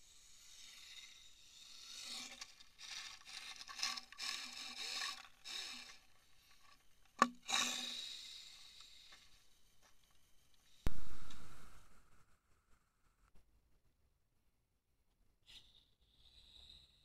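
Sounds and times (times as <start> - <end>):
toy car motor and gears whining: 0.0 - 10.0, 15.4 - 17.0.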